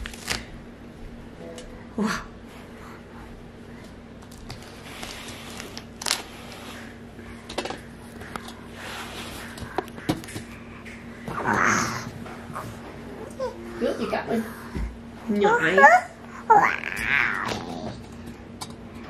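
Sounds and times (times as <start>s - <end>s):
paper rustling and crinkling: 0.0s - 0.5s, 4.2s - 7.0s
faint steady hum: 0.0s - 19.0s.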